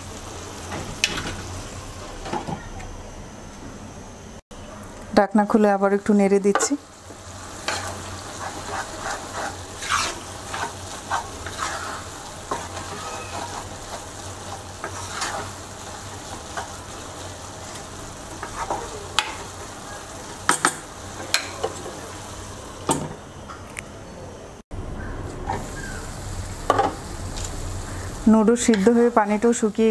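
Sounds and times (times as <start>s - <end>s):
noodles sizzling: 0.0s - 23.4s, 24.7s - 29.9s
wooden spatula scraping a pan: 7.6s - 16.8s, 18.3s - 19.4s.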